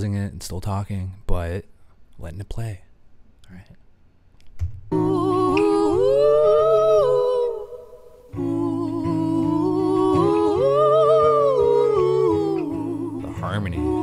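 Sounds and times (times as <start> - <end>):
acoustic guitar: 4.6 - 14.0
wordless singing: 4.9 - 14.0.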